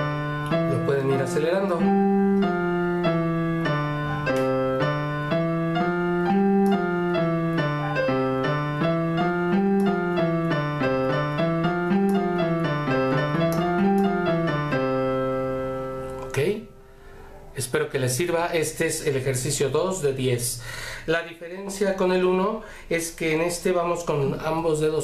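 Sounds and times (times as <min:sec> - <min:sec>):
electronic keyboard notes: 0:00.0 - 0:17.6.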